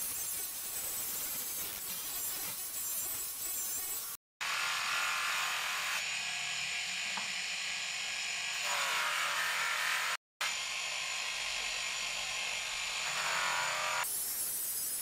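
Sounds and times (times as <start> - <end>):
polishing motor humming: 4.4 - 14.1.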